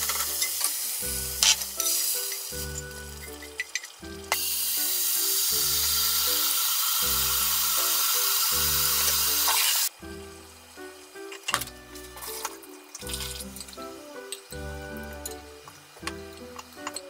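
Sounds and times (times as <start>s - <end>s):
background music with steady beat: 0.0s - 17.0s
loud steady hiss: 0.0s - 17.0s.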